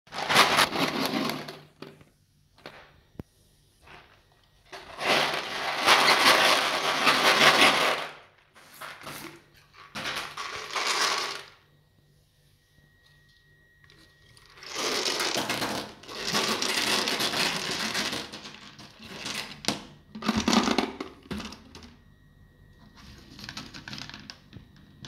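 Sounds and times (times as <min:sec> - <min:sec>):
gumballs rattling in plastic jar: 0:00.1 - 0:01.7, 0:04.8 - 0:08.2, 0:09.9 - 0:11.5, 0:14.5 - 0:21.6.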